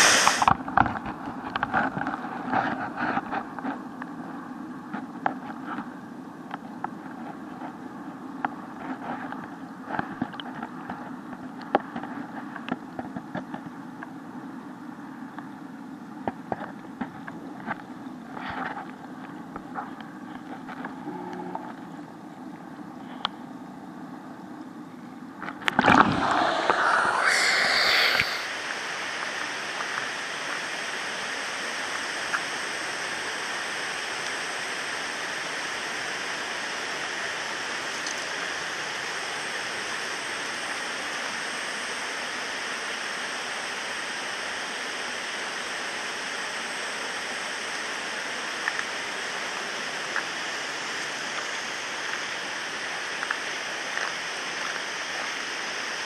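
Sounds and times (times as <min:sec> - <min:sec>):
waterfall rushing: 0:00.0 - 0:00.5, 0:25.8 - 0:29.9.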